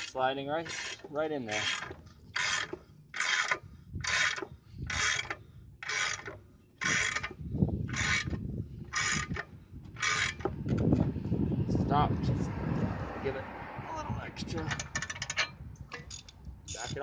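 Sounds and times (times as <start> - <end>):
ratchet wrench rasping: 0.0 - 10.8, 14.7 - 17.0
low grinding: 0.0 - 13.4.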